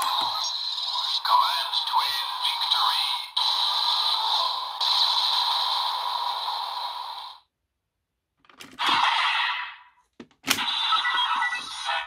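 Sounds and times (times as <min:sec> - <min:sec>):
toy electronic hiss effect: 0:00.0 - 0:07.5.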